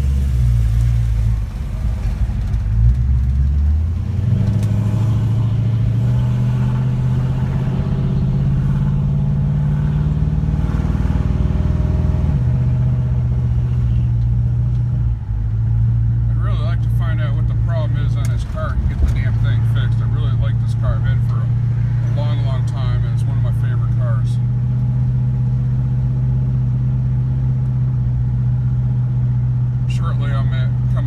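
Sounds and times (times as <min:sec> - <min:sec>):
car engine accelerating: 0:00.0 - 0:31.0.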